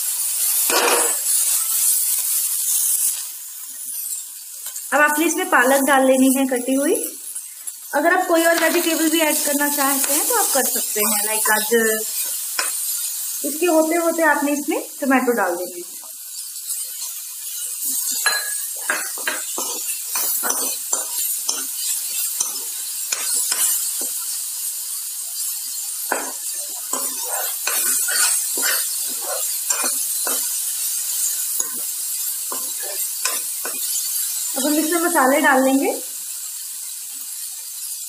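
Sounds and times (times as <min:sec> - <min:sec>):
vegetables sizzling in oil: 0:00.0 - 0:38.0
steel spoon scraping a pan: 0:00.4 - 0:03.2, 0:08.5 - 0:13.1, 0:16.6 - 0:24.4, 0:25.4 - 0:34.4.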